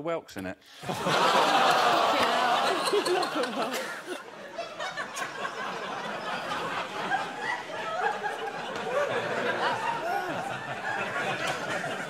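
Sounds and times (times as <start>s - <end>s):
audience laughing: 0.8s - 12.0s.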